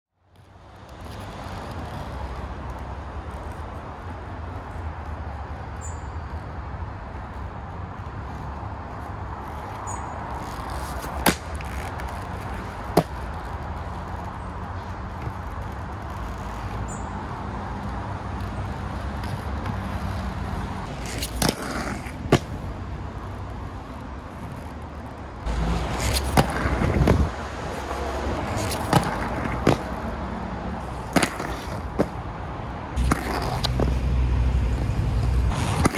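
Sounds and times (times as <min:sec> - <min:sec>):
skate wheels rolling over concrete: 0:00.3 - 0:05.8, 0:06.9 - 0:35.9
sharp clacks of skate impacts: 0:06.4 - 0:22.8, 0:24.3 - 0:30.2, 0:30.8 - 0:32.3, 0:33.0 - 0:34.1, 0:34.8 - 0:35.9.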